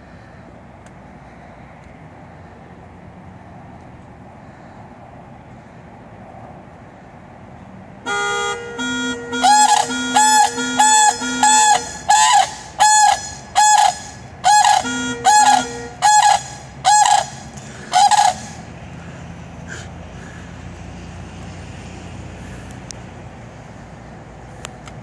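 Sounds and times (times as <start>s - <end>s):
crane honking calls: 8.1s - 20.4s.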